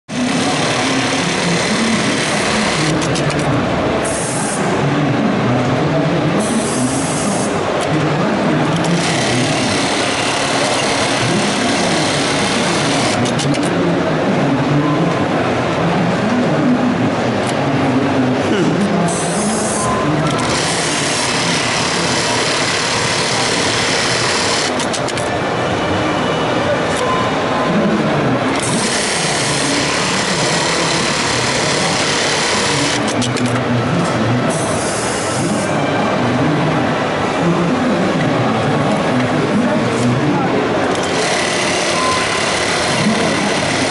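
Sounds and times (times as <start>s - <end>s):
sewing machine stitching: 0.1s - 3.5s, 8.7s - 13.7s, 20.3s - 25.2s, 28.5s - 33.6s, 40.9s - 43.9s.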